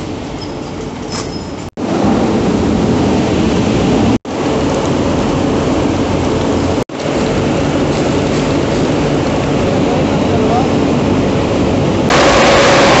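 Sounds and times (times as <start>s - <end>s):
conveyor machinery running: 0.0s - 13.0s
water sprays: 12.1s - 13.0s.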